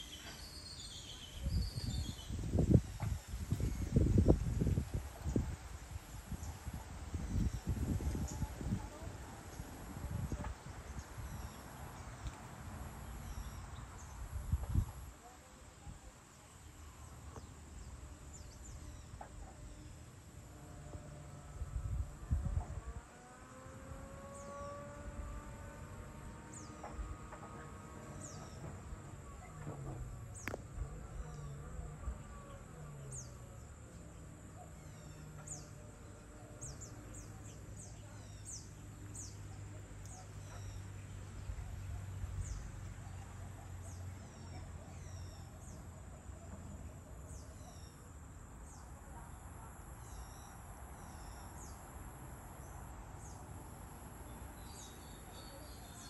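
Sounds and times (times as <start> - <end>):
insect chorus buzzing: 23.0 - 28.6, 47.3 - 56.0
birds chirping: 26.4 - 29.6, 30.2 - 41.6, 42.4 - 56.0.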